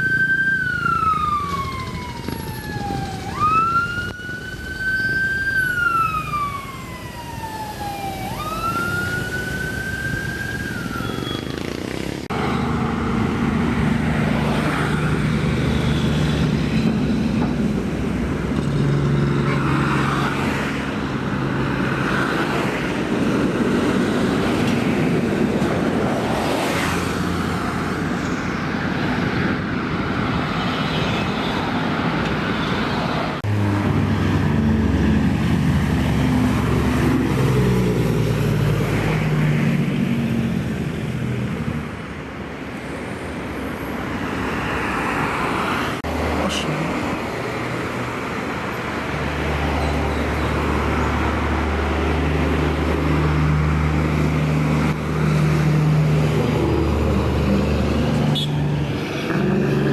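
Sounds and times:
siren wailing: 0:00.0 - 0:11.8.

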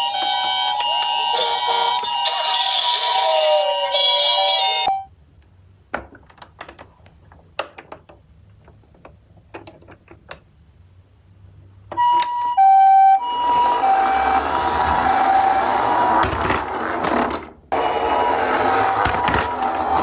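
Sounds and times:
toy ambulance sirens: 0:00.0 - 0:05.0, 0:12.0 - 0:16.2, 0:17.8 - 0:20.0
two-tone toy siren: 0:00.0 - 0:05.0, 0:12.0 - 0:16.0
toy electronic tones: 0:00.0 - 0:05.1
plastic toys clicking and knocking: 0:05.9 - 0:10.5.

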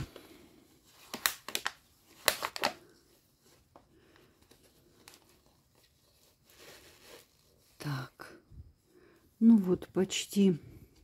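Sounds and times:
plastic cup crinkling: 0:00.0 - 0:08.1
faint rustling: 0:02.8 - 0:09.6.

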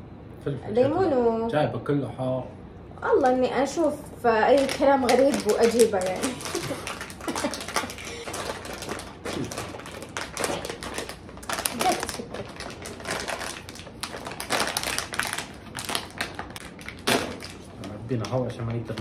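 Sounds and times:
crisp bag crinkling: 0:04.6 - 0:19.0.

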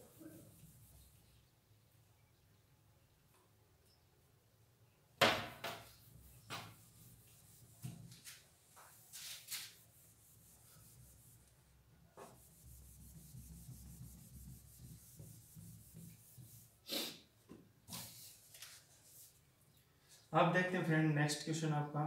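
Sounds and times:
low room noise: 0:00.0 - 0:22.0
rubbing and scratching: 0:05.8 - 0:17.1, 0:17.9 - 0:19.5.

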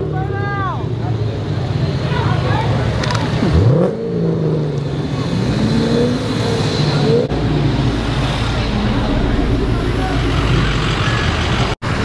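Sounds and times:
engine rumble: 0:00.0 - 0:12.0
car engine accelerating hard: 0:02.4 - 0:12.0.

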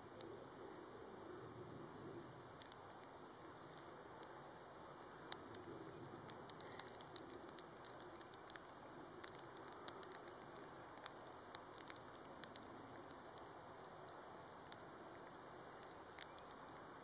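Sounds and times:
faint rain hiss: 0:00.0 - 0:17.0
raindrops ticking on surface: 0:04.2 - 0:17.0.

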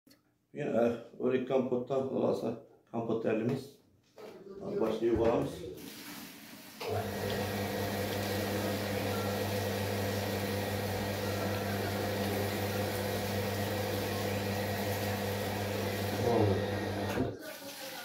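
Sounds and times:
water running into bowl: 0:05.8 - 0:18.0
tap turned on: 0:06.8 - 0:09.0.

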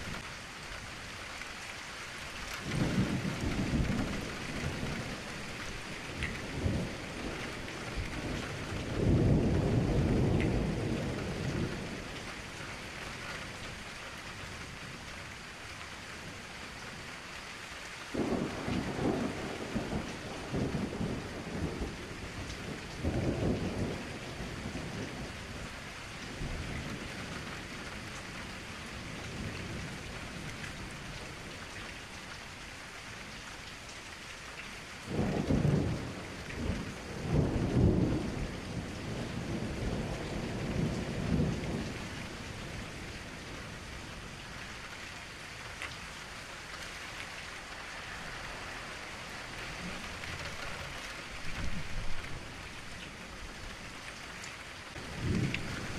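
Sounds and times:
steady rain falling: 0:00.0 - 0:55.9
thunder rumbling: 0:02.6 - 0:12.3, 0:18.1 - 0:25.7, 0:35.1 - 0:44.4, 0:54.9 - 0:55.9.

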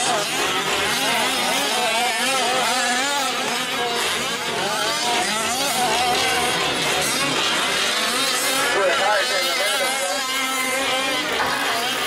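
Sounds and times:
small two-stroke engines revving: 0:00.0 - 0:12.0.

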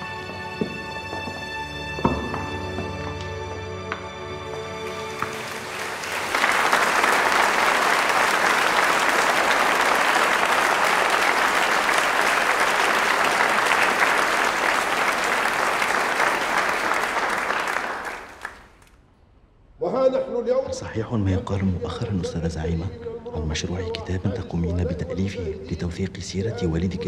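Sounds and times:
music: 0:00.0 - 0:08.6, 0:20.7 - 0:27.0
audience applauding: 0:02.9 - 0:18.9.

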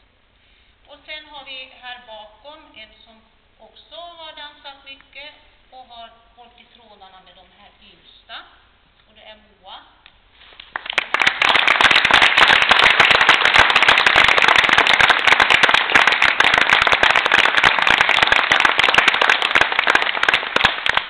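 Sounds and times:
audience applause: 0:10.6 - 0:21.0.

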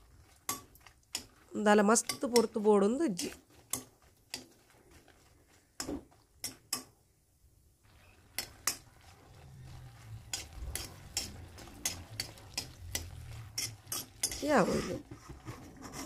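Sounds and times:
metal spoon scraping a pan: 0:00.0 - 0:06.9, 0:07.9 - 0:16.0
chillies stirred in oil in a pan: 0:00.0 - 0:16.0.

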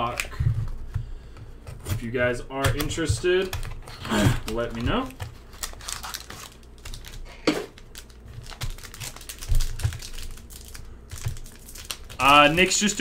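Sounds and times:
foil wrapper crinkling: 0:02.8 - 0:13.0.

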